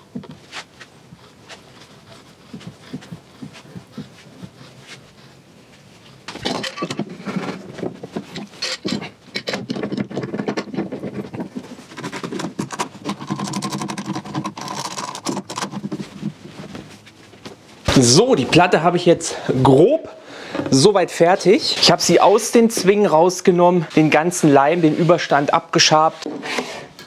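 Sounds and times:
steel clamps clattering: 6.3 - 7.6, 8.2 - 11.0
glue roller rolling on wood: 6.4 - 16.7.

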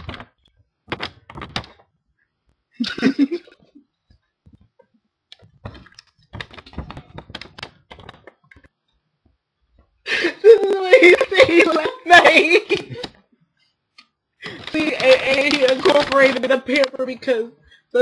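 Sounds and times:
paper crackling and rustling: 0.0 - 1.9, 5.4 - 8.7, 10.5 - 13.2, 14.4 - 17.4.

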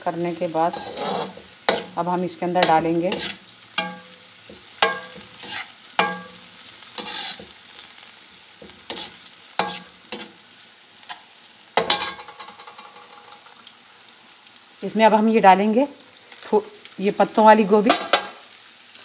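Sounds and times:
vegetables sizzling in oil: 0.0 - 19.0
metal spoon scraping and knocking pan: 0.7 - 7.6, 8.6 - 10.4, 11.8 - 13.4, 17.9 - 18.4.

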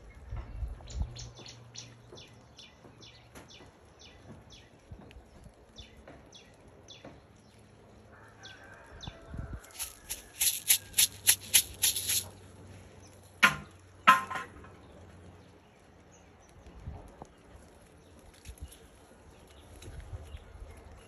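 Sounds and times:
leaves rubbing against phone: 9.6 - 12.4
sharp clicks: 9.7 - 12.3.

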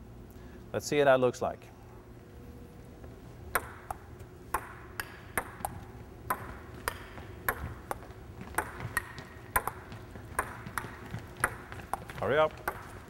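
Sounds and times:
ball bouncing on table: 3.5 - 13.0
ping pong ball clicking off paddles: 3.5 - 13.0.

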